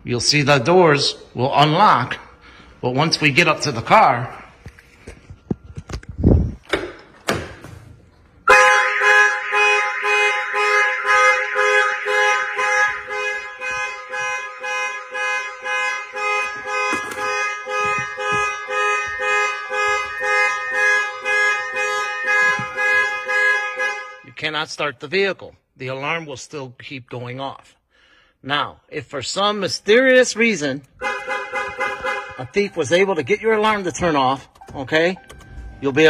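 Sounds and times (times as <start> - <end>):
car alarm siren pulsing: 8.4 - 24.4, 30.4 - 36.0.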